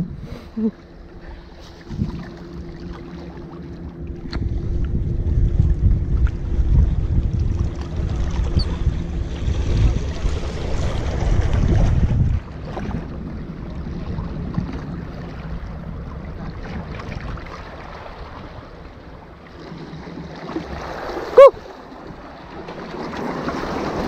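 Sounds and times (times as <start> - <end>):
wind on microphone: 1.7 - 2.4, 4.1 - 18.7
sea water washing against rocks: 19.6 - 24.0.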